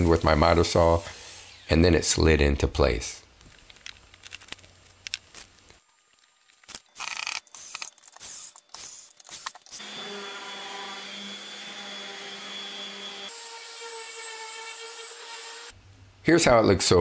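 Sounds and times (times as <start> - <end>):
drill driving screws: 7.0 - 15.7
orbital sander running: 9.8 - 15.7.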